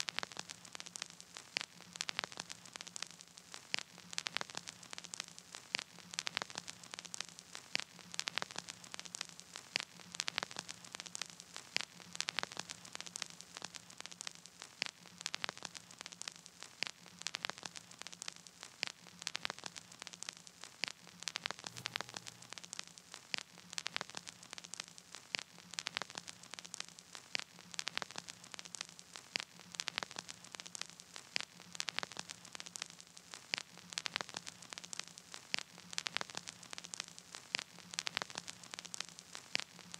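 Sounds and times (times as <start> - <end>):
faint hiss: 0.0 - 39.9
static clicks and pops: 0.0 - 39.9
low hum: 21.7 - 22.8.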